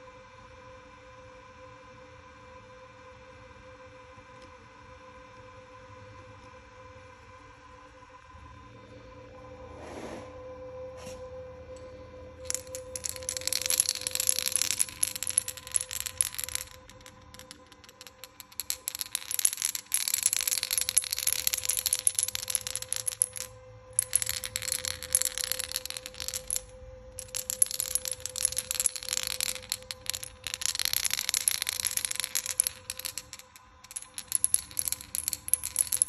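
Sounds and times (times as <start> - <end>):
rapid metallic clicking rattle: 12.5 - 36.0.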